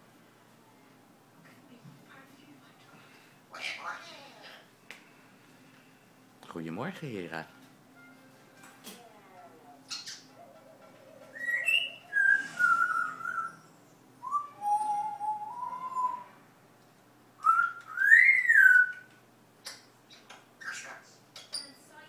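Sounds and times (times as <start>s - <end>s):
parrot whistling: 9.9s - 16.4s, 17.4s - 19.1s
parrot clicks: 19.6s - 20.4s.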